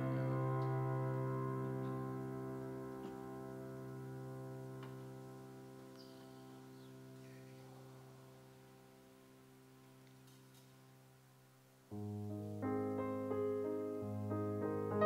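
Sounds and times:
electric keyboard chords: 0.0s - 9.5s, 11.9s - 15.0s.

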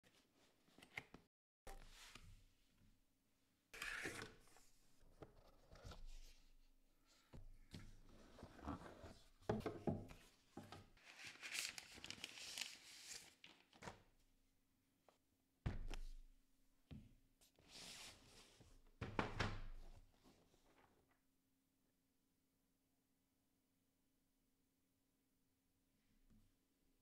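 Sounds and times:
cardboard rustling slide: 17.6s - 18.7s.

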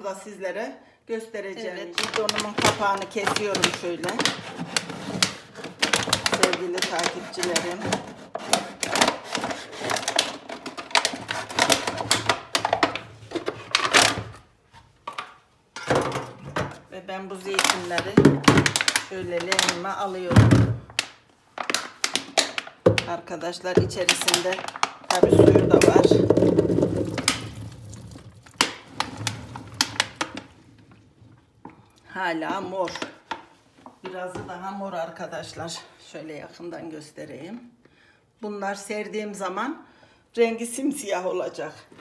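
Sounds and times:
olives pouring into plastic basin: 23.9s - 31.6s
knife cutting plastic jug: 24.0s - 30.5s.

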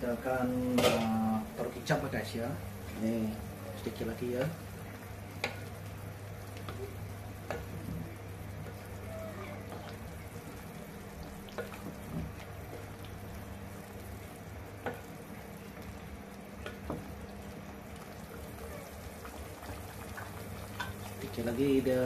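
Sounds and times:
pot bubbling: 0.0s - 22.0s.

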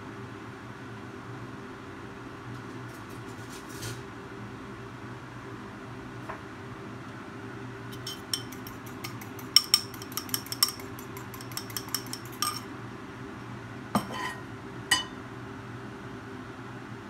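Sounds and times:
steady low hum: 7.4s - 15.7s
utensil clinking on ceramic bowl: 7.9s - 12.7s, 14.0s - 15.2s
kitchenware knocks: 14.0s - 15.2s.

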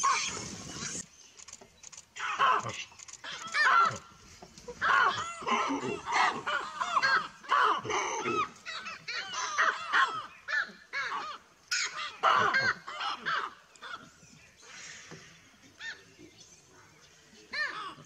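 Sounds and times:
baboons giving alarm barks: 2.2s - 14.1s.

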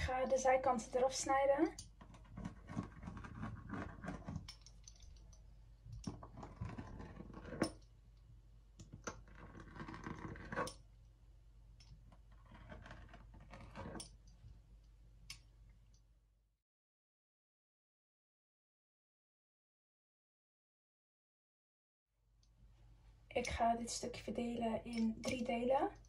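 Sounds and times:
pizza cutter scraping on stone: 2.2s - 4.4s, 6.2s - 7.7s, 9.2s - 10.8s.

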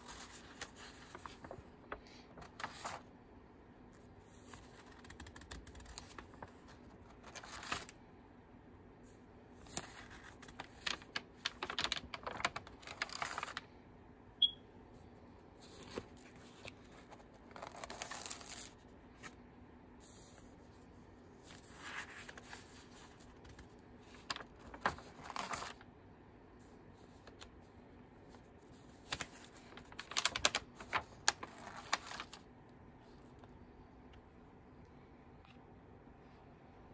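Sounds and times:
paper pages rustling: 0.0s - 3.1s, 4.0s - 8.0s, 9.5s - 13.7s, 15.6s - 19.4s, 21.4s - 25.9s, 28.3s - 32.5s.

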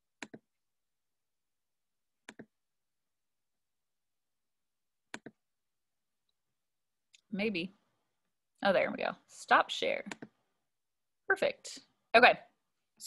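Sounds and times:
computer mouse clicks: 0.2s - 0.4s, 2.2s - 2.5s, 5.1s - 5.4s, 10.0s - 10.4s.

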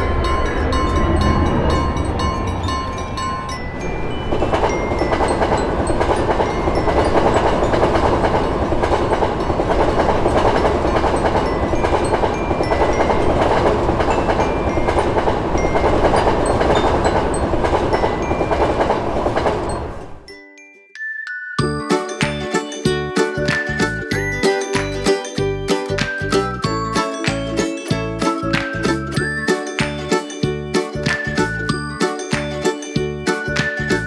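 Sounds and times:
train wheels rumbling on rails: 0.0s - 20.3s.

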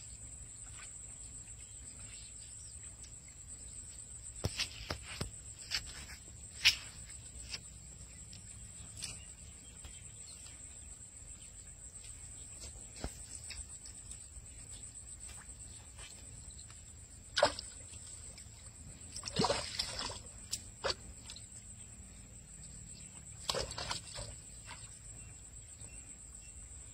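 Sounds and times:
lure splashing through weeds: 19.2s - 21.0s.

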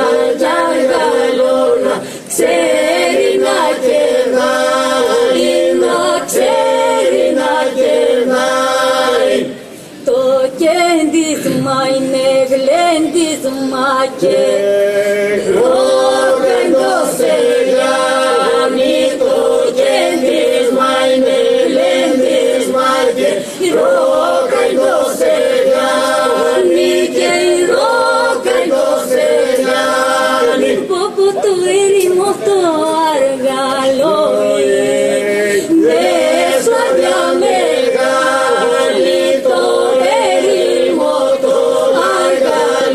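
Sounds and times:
group singing unaccompanied: 0.0s - 42.9s.

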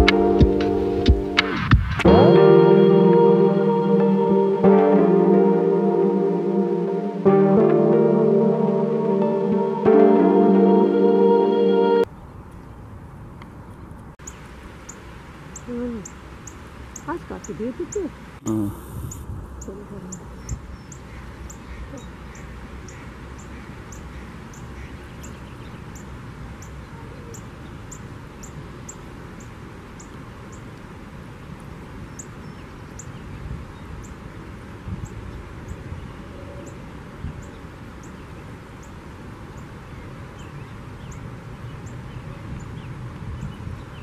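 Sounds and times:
low rumble and hiss: 12.0s - 43.9s.

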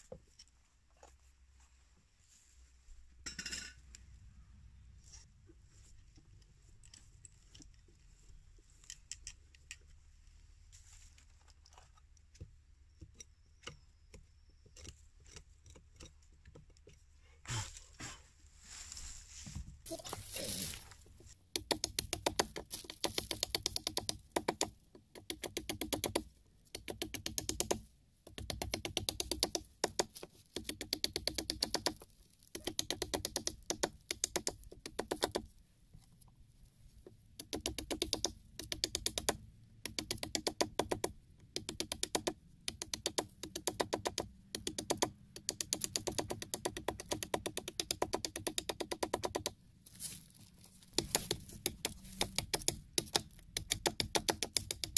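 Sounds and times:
hand tool crackling on wood: 19.9s - 24.6s, 44.6s - 54.9s.

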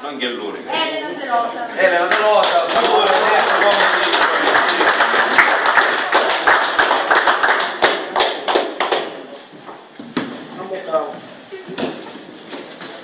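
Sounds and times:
people applauding: 2.0s - 9.4s.

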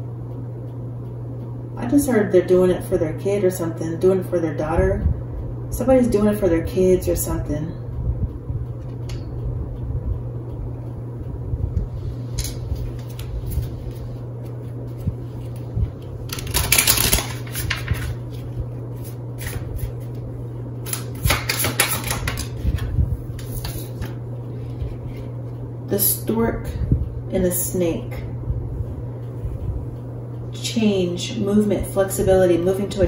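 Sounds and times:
steady low hum: 0.0s - 33.0s
cards being shuffled: 12.4s - 14.2s, 16.3s - 20.2s, 20.8s - 24.2s.

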